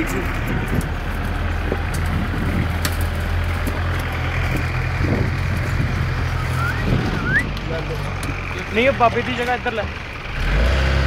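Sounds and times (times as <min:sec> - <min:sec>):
jeep engine running at low revs: 0:00.0 - 0:11.0.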